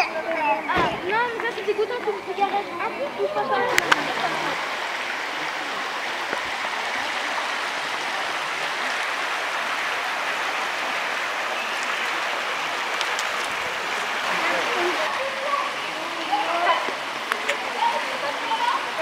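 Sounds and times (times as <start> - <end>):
water running over street: 0.0 - 19.0.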